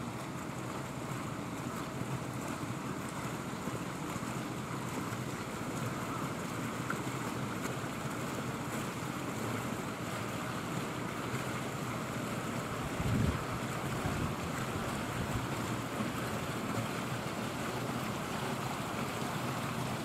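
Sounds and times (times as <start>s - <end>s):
wind rushing over microphone: 13.0s - 13.4s.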